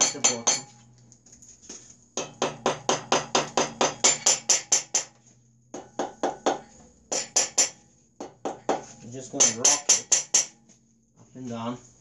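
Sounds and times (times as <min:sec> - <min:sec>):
hammer tapping on metal: 0:00.0 - 0:00.8, 0:02.2 - 0:10.6.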